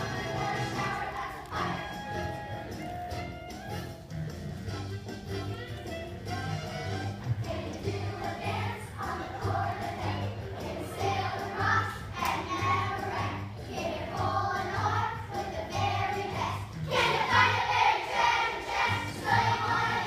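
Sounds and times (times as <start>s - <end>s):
children singing together: 0.0s - 1.9s, 7.4s - 20.0s.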